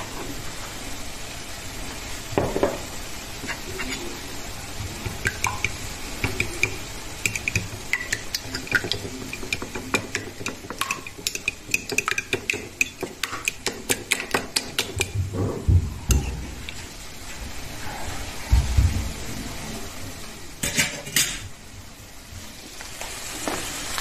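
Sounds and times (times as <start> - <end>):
fork clicking against plate: 5.2 - 15.2.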